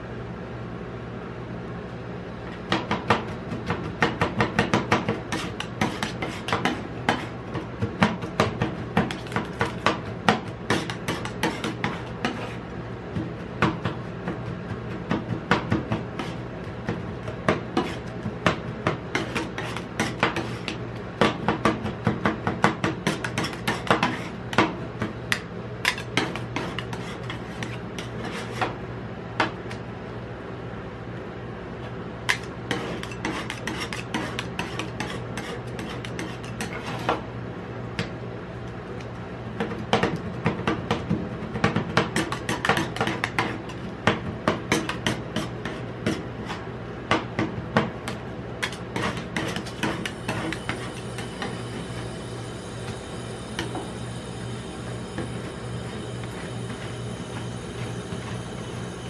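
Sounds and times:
steady low hum: 0.0s - 59.0s
spatulas scraping metal plate: 10.7s - 12.6s, 32.3s - 37.2s, 48.6s - 51.6s.

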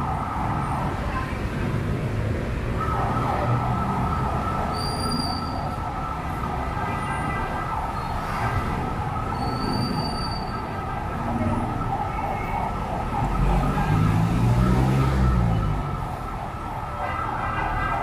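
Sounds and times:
busy city street noise: 0.0s - 18.0s.

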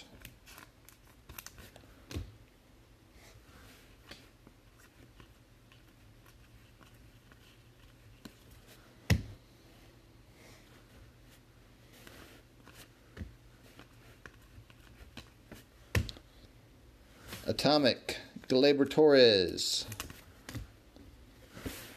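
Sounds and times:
trading cards clicking and rustling: 18.8s - 20.7s.

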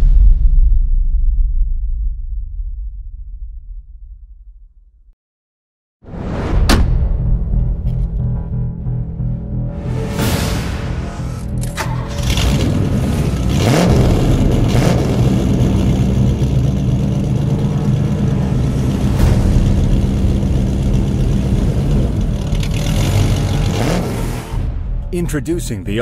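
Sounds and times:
car engine running loudly: 11.3s - 24.7s.

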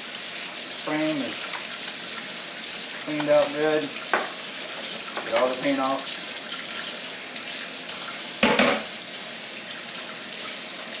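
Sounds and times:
water running into a steel sink: 0.0s - 11.0s
water splashing over paint roller: 0.8s - 9.0s.

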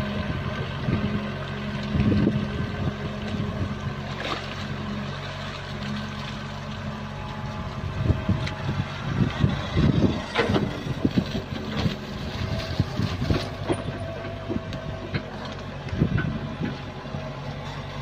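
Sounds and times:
excavator diesel engine running: 0.0s - 18.0s.

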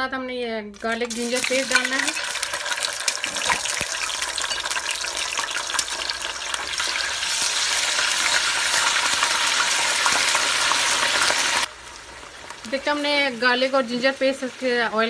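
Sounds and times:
paste sizzling in hot oil: 0.8s - 15.0s.

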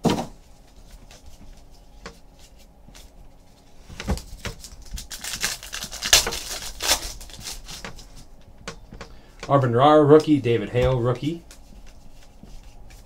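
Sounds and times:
foil pack crackling and tearing: 4.2s - 8.2s.

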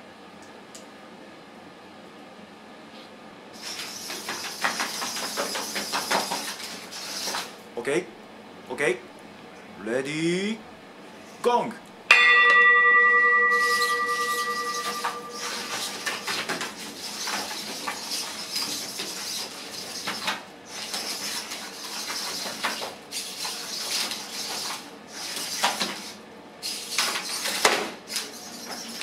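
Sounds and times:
metal frames clattering: 12.4s - 18.0s.

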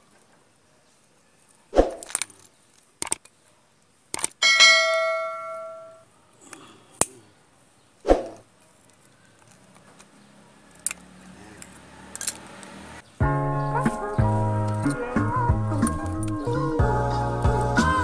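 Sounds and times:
pliers clicking and tapping: 3.0s - 3.3s, 4.1s - 4.4s, 10.7s - 12.8s.

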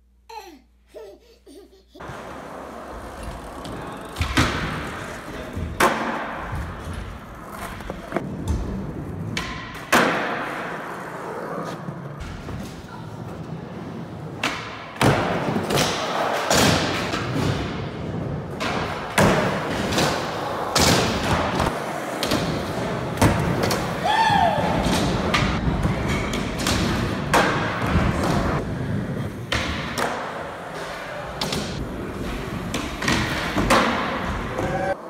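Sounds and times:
baby babbling and laughing: 0.3s - 2.6s
skateboard wheels rolling: 2.0s - 9.4s, 15.1s - 35.0s.

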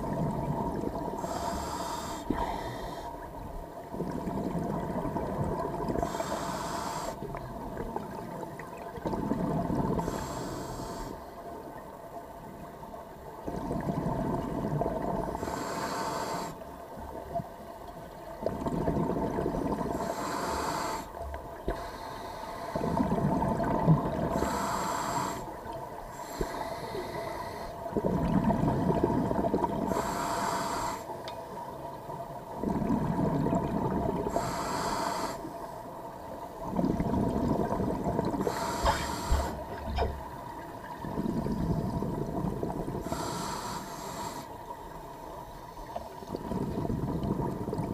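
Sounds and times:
exhaled bubbles gurgling: 0.0s - 11.0s, 13.2s - 16.5s, 17.1s - 35.4s, 36.2s - 44.8s, 45.9s - 47.9s
regulator breath hiss: 1.2s - 3.1s, 6.0s - 7.3s, 10.0s - 11.3s, 15.4s - 16.6s, 19.9s - 22.9s, 24.3s - 27.8s, 29.9s - 31.2s, 34.3s - 35.5s, 38.4s - 39.7s, 43.0s - 44.6s.

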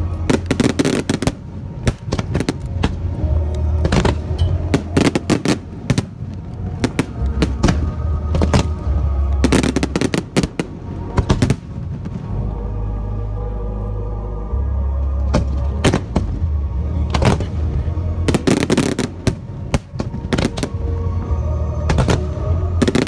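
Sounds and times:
fireworks bursting: 0.0s - 12.4s
music playing: 0.0s - 23.0s.

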